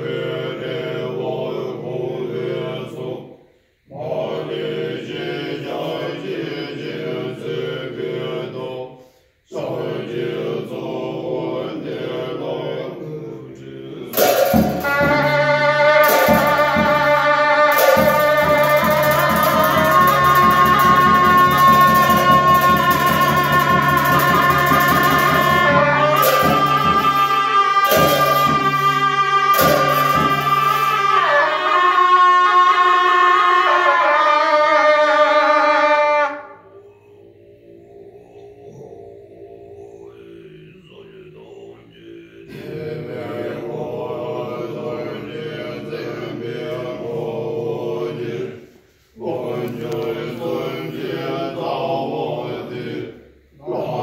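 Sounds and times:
monks chanting in deep voices: 0.0s - 54.0s
double-reed horns wavering melody: 14.0s - 41.0s
frame drum strokes: 14.1s - 31.4s
cymbals clashing: 14.1s - 31.8s.

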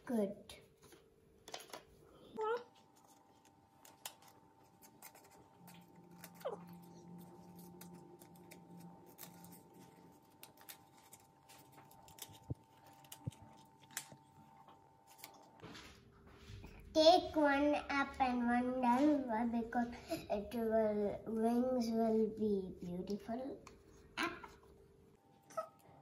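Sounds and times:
scissors snipping paper: 2.9s - 15.5s.

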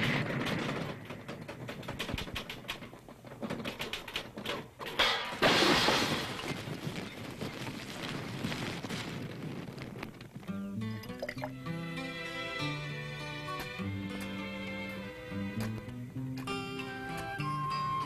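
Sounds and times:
loud crash: 0.0s - 1.9s, 5.0s - 7.4s
continuous clattering knocks: 0.0s - 7.8s.

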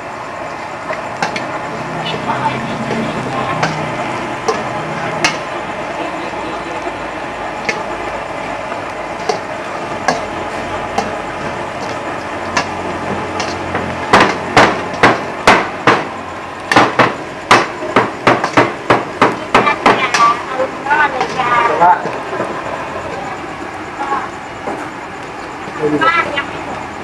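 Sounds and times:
wooden pestle pounding on wood: 16.7s - 20.0s.

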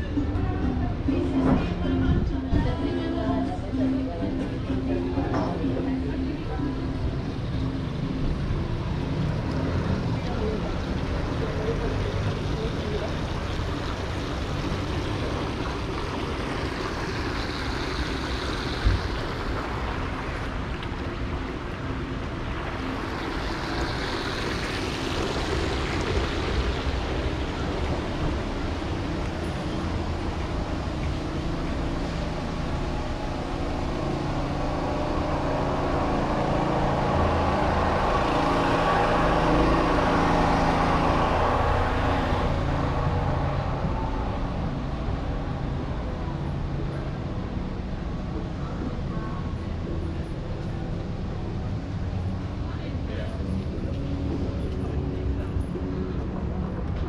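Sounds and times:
vehicle engine hum: 0.0s - 57.0s
cars swishing past: 3.7s - 47.2s.

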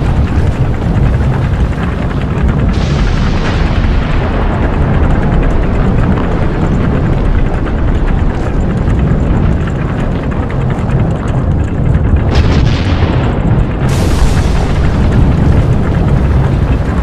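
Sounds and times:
deep crackling volcanic rumble: 0.0s - 17.0s
sharp blast: 12.3s - 17.0s.

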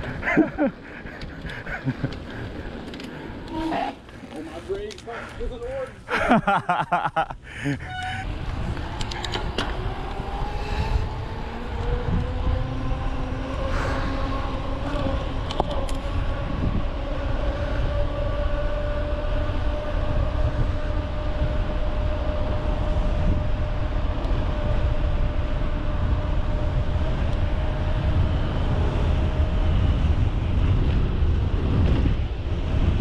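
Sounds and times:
bike rolling on trail: 0.0s - 33.0s
wind rushing over microphone: 7.4s - 33.0s.

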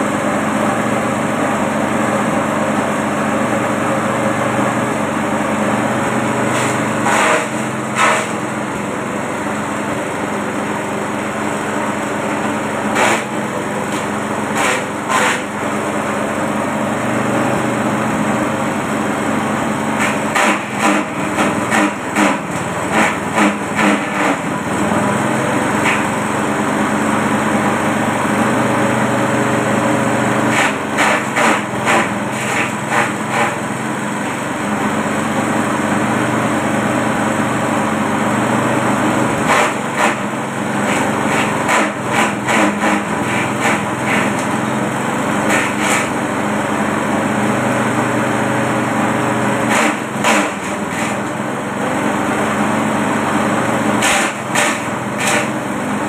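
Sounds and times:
small petrol engine running: 0.0s - 56.0s
blades chopping branches: 6.5s - 8.4s, 12.3s - 15.5s, 20.0s - 24.4s, 25.8s - 26.1s, 30.5s - 33.6s, 39.4s - 40.2s, 40.8s - 44.6s, 45.4s - 46.2s, 49.6s - 51.4s, 54.0s - 55.6s.

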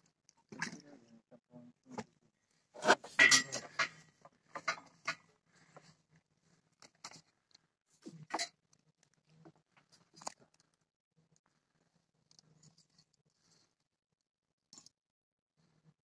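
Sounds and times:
objects clinking and knocking: 2.8s - 4.0s.

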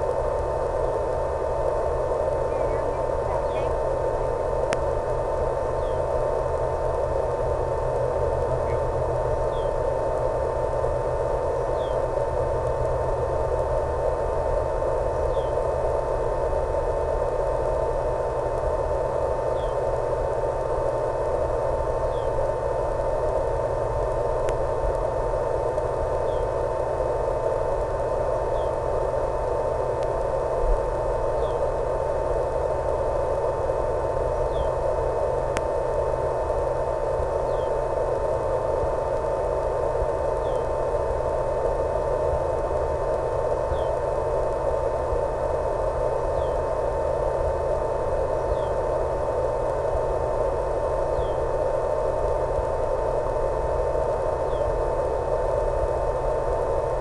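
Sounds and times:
radio static: 0.0s - 13.5s
constant thin tone: 0.0s - 57.0s.

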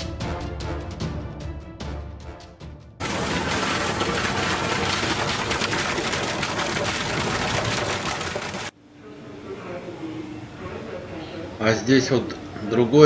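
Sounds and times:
fountain water pouring and splashing: 3.0s - 8.7s.

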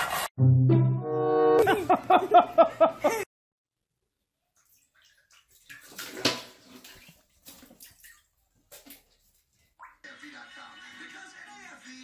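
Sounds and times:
water splashing in toilet bowl: 4.4s - 10.1s.

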